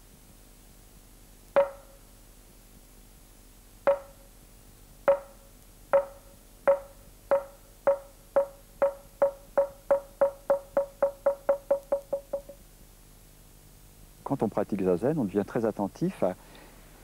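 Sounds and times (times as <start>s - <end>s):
mallet striking wooden board: 1.6s - 2.0s, 3.9s - 4.3s, 5.1s - 12.6s.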